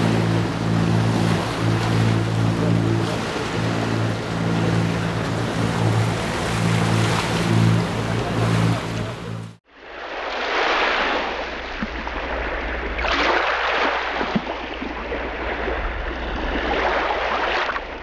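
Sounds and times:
boat engine hum: 0:00.0 - 0:09.6
sea water rushing: 0:00.0 - 0:18.0.

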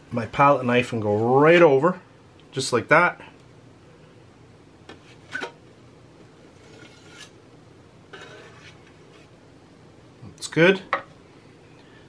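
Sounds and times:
palette knife scraping mould: 0:06.5 - 0:07.4, 0:08.1 - 0:09.3.

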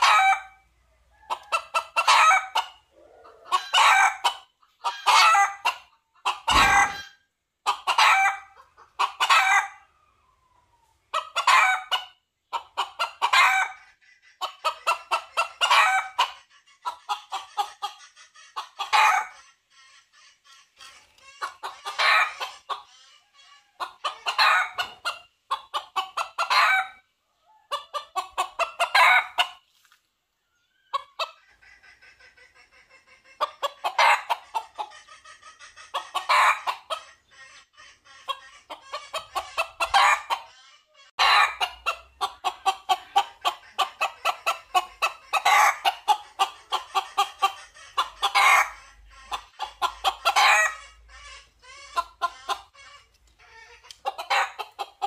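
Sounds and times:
junglefowl clucking calls: 0:00.0 - 0:30.0, 0:30.6 - 0:55.0.

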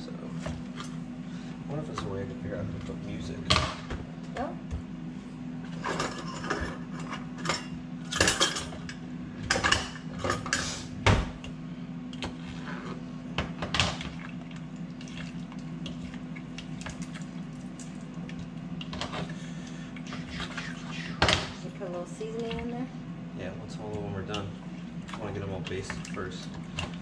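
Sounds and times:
metal utensils clattering: 0:05.8 - 0:08.9.

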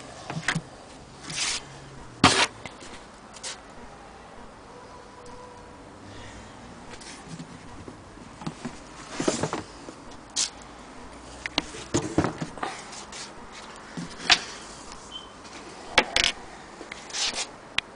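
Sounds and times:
rubbing scrapes: 0:01.2 - 0:02.6, 0:17.0 - 0:17.5.

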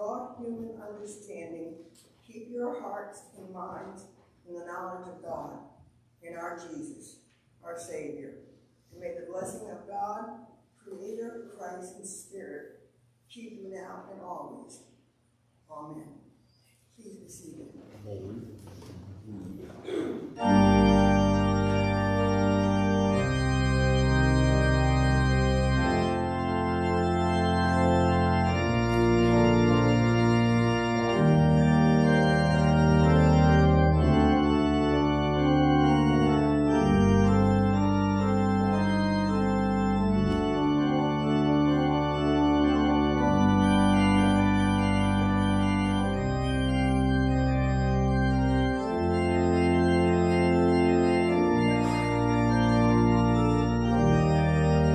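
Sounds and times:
organ playing sustained chords: 0:19.3 - 0:54.9
organ bass line: 0:20.3 - 0:54.9.

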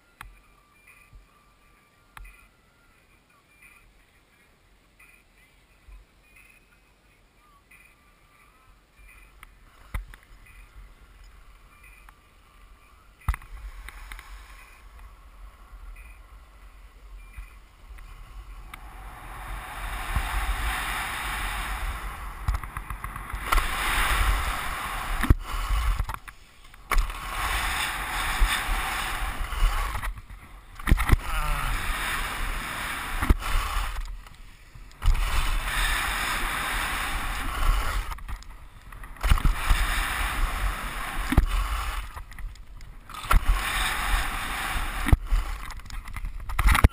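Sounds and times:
wind on microphone: 0:13.4 - 0:46.9
skis scraping on snow: 0:13.5 - 0:46.9.

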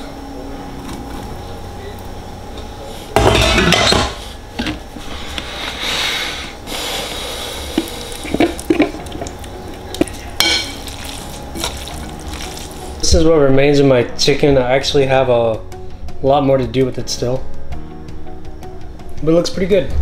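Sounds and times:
utensil stirring pasta: 0:07.0 - 0:13.0.

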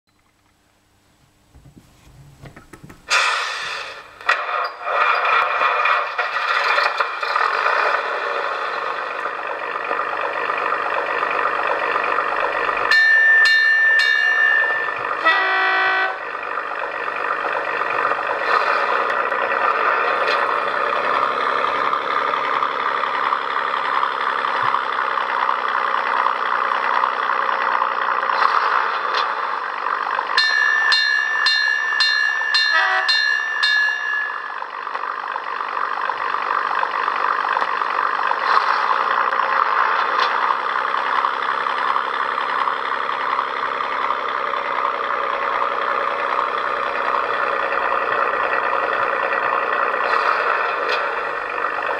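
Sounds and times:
model railcar engine sound: 0:01.2 - 0:51.9
model railcar horn: 0:12.9 - 0:16.6, 0:30.4 - 0:34.5.

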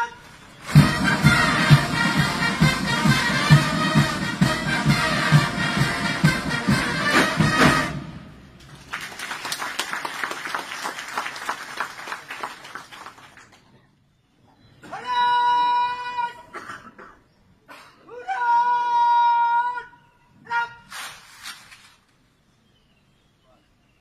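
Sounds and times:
military band playing a march: 0:00.0 - 0:08.6
people clapping: 0:08.6 - 0:13.8.

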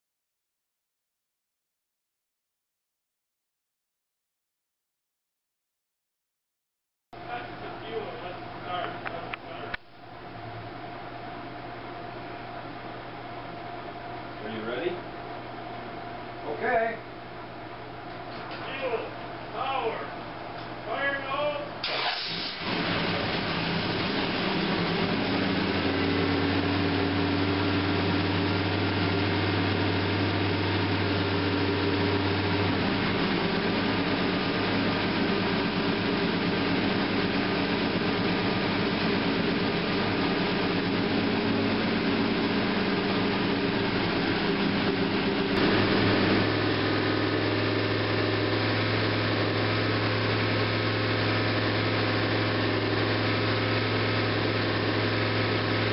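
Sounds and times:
car engine running: 0:21.9 - 0:55.9.

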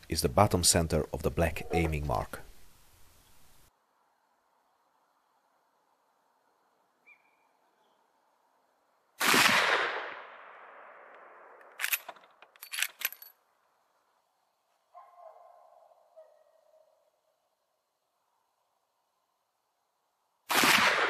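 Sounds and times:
rifle shot: 0:09.2 - 0:12.0, 0:20.5 - 0:21.0.

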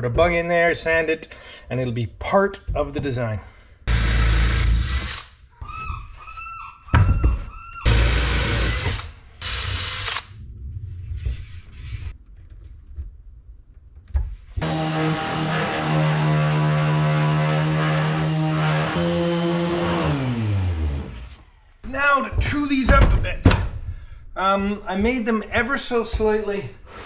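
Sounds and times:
cordless drill whirring: 0:03.9 - 0:05.4, 0:07.8 - 0:10.3
orbital sander running: 0:07.9 - 0:09.8, 0:14.6 - 0:21.4.

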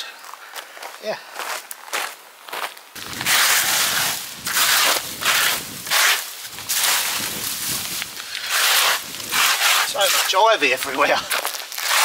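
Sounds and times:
plants ripped up by hand: 0:03.0 - 0:12.0.

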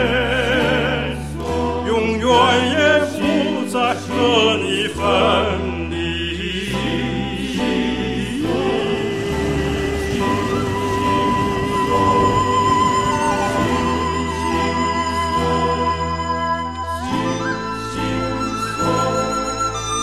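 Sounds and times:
low accompanying notes: 0:00.0 - 0:20.0
voices singing with vibrato: 0:00.0 - 0:20.0.

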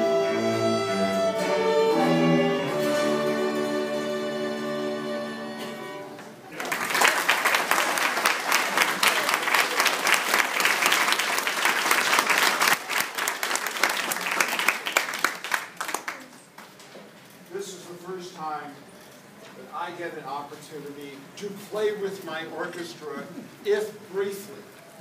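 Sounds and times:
audience applauding: 0:06.5 - 0:16.8.

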